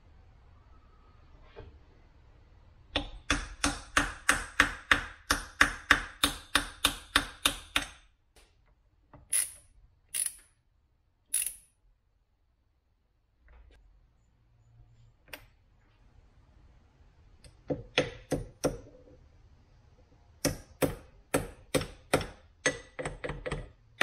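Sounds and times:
hammer tapping on metal: 2.9s - 8.0s.

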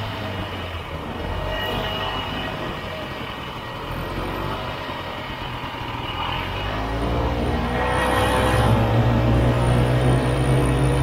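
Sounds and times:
snowmobile engine running: 7.1s - 11.0s.

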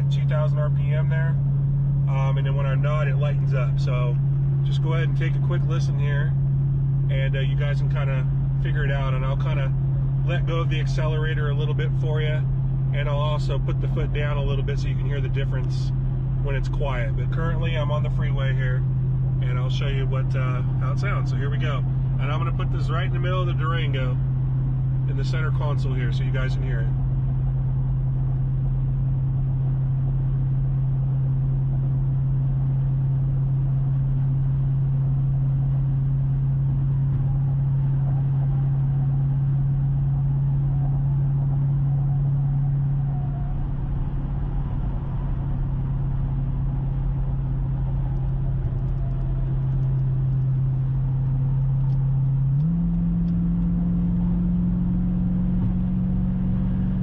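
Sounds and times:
engine exhaust drone in cabin: 0.0s - 57.0s
tyre and road noise: 0.0s - 57.0s.

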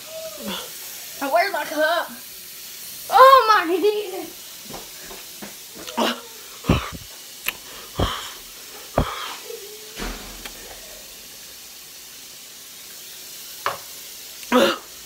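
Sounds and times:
person hissing breaths and gasps: 5.8s - 9.6s.

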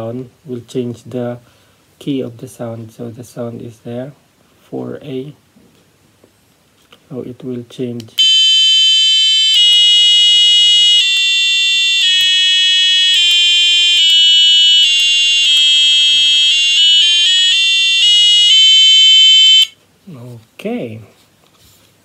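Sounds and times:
electronic tuner reference tone: 8.2s - 19.7s.

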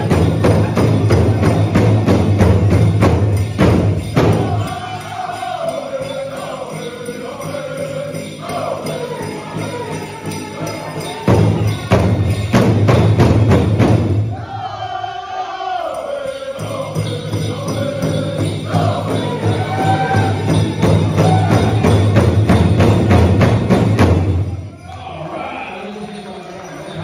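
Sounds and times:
men singing: 4.0s - 12.6s, 14.4s - 23.1s, 24.8s - 27.0s.

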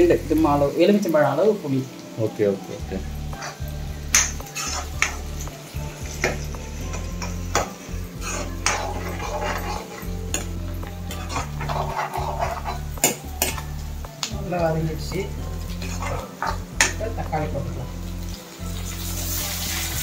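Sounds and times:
garlic and shallots frying: 0.0s - 20.0s
metal spoon scraping a pan: 3.3s - 13.9s, 15.0s - 17.2s.

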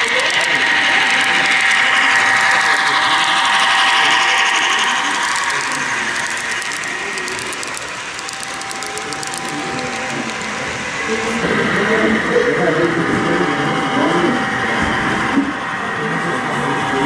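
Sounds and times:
rapid fine clicking: 0.0s - 10.7s
model train motor whining: 0.0s - 15.4s.

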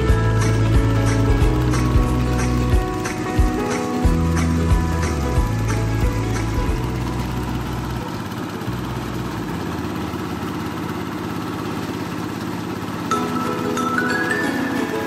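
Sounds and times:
background music: 0.0s - 8.0s, 13.1s - 15.0s
corn thresher: 0.0s - 15.0s
diesel engine running: 0.0s - 15.0s.

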